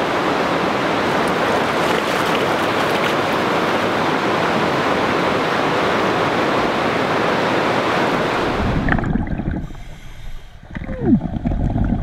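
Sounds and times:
river water pouring over spillway: 0.0s - 9.4s.

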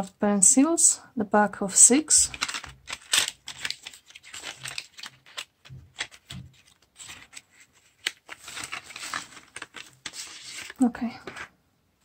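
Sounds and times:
cardboard pack clicks and rustles: 2.3s - 11.4s.

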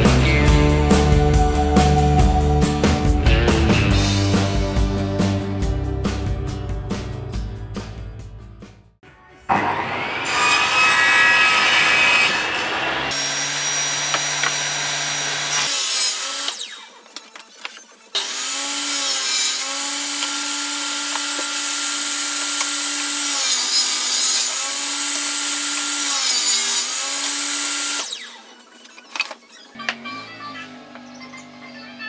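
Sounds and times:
table saw cutting board: 9.5s - 29.7s.

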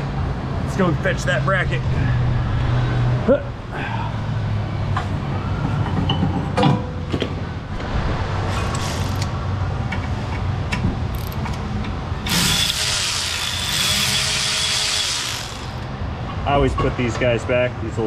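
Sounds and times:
shop hum: 0.0s - 18.0s
power tool whirring: 12.2s - 15.9s.

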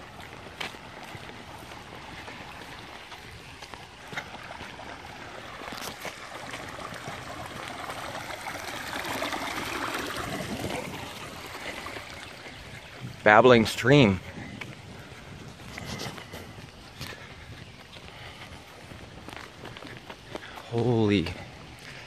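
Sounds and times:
floodwater running down a street: 0.0s - 22.0s.

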